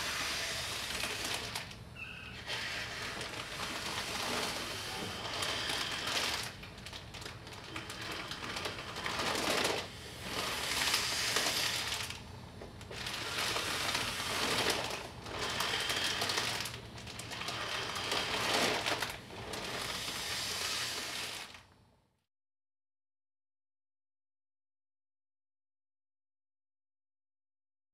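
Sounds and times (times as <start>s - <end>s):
noisy breathing through mask: 0.0s - 1.6s, 2.2s - 6.6s, 7.5s - 12.2s, 13.0s - 21.5s
plastic bag crinkling: 0.0s - 21.7s.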